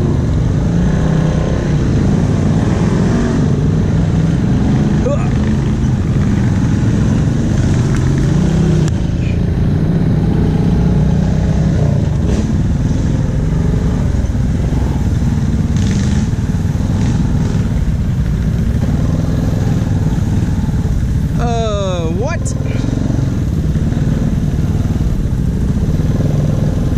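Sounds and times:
quad bike engine running: 0.0s - 26.9s.

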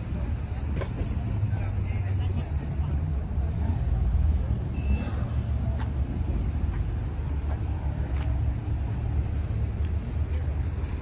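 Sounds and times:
faint footsteps: 5.7s - 10.7s.

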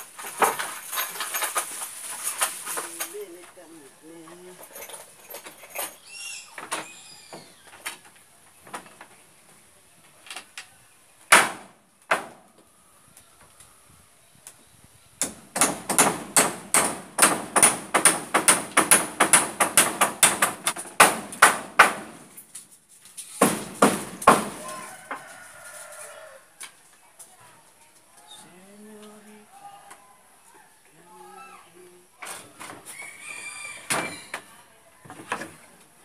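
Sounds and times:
hammer striking wood: 11.3s - 12.4s, 15.2s - 22.3s, 23.4s - 24.6s.

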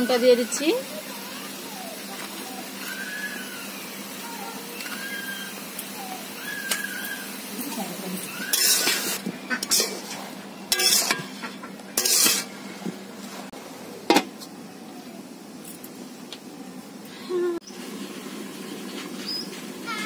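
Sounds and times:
metal spatula scraping a wok: 8.5s - 12.6s
metal lid clanking on a wok: 10.7s - 11.3s, 12.0s - 12.5s.

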